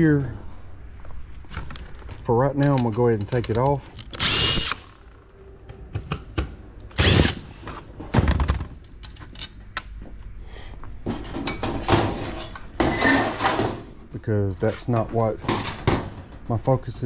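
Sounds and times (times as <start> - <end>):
metal parts clattering on workbench: 11.1 - 13.8, 15.4 - 16.2.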